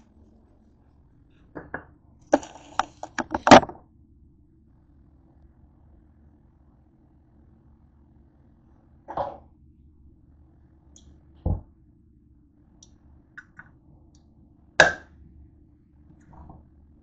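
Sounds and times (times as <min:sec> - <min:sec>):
can opener knocking on can: 0:02.4 - 0:03.8.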